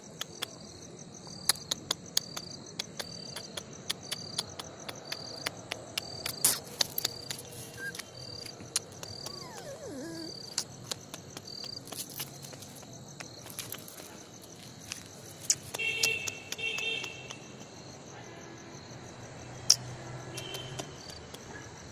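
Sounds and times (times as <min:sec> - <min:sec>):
crickets chirping: 0:00.0 - 0:21.9
sharp clicks and taps: 0:01.4 - 0:17.8.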